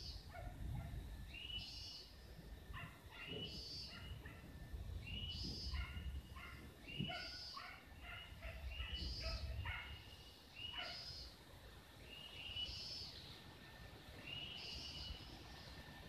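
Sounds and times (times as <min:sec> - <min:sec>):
dogs barking and yelping: 0:00.2 - 0:01.0, 0:02.7 - 0:04.5, 0:05.4 - 0:10.0, 0:10.7 - 0:11.1.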